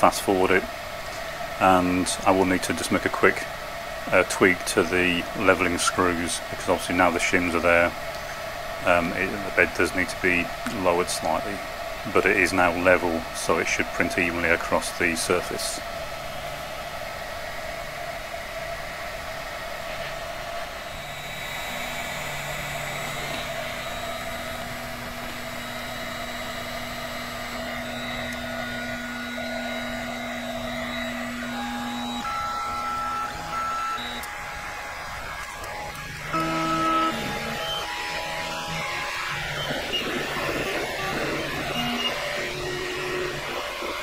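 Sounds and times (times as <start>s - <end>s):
printer fans humming: 0.0s - 44.0s
stepper motors whining: 0.0s - 44.0s.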